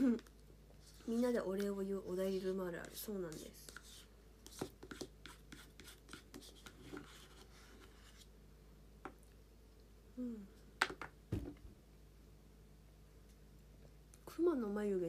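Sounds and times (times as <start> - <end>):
person humming: 10.2 - 10.6.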